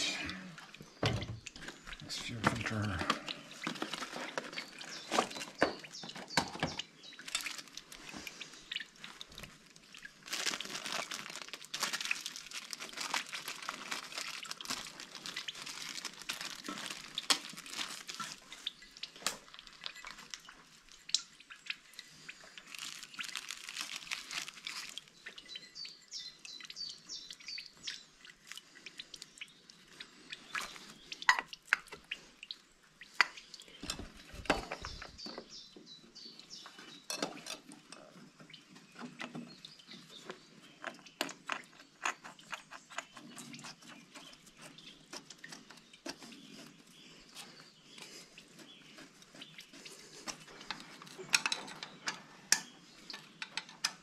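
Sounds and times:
packaging rustling and crinkling: 1.6 - 21.0, 22.6 - 25.2.

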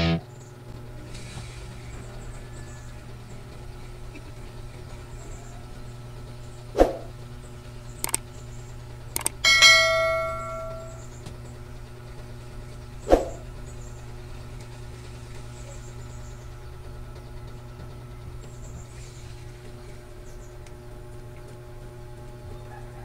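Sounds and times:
bell-like ding: 9.4 - 11.1.

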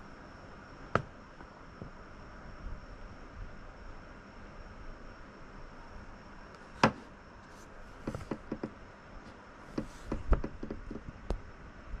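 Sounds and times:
faint steady hiss: 0.0 - 12.0
sharp knocks and taps: 8.0 - 8.8, 9.8 - 11.2.

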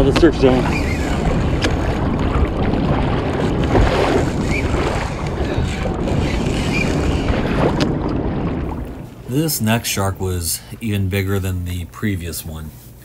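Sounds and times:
wind noise on microphone: 0.0 - 9.2
sea water splashing: 0.0 - 12.3.

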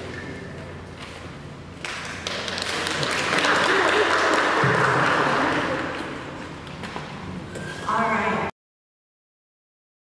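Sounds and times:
crowd of indistinct voices: 2.5 - 7.9.

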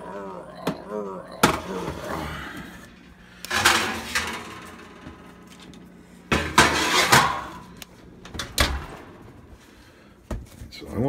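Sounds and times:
baking pan scraping on oven rack: 6.3 - 7.7.

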